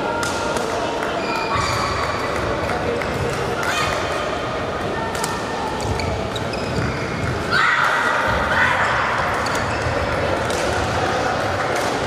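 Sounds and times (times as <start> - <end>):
busy sports hall noise: 0.0 - 12.0
shoes squeaking on court: 5.8 - 7.5, 9.2 - 10.0.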